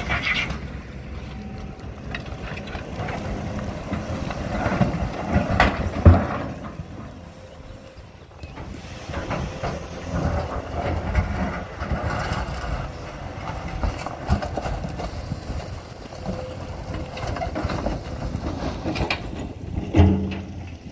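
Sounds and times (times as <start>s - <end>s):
excavator engine and hydraulics: 0.0s - 20.9s
loud clunk: 18.9s - 20.6s.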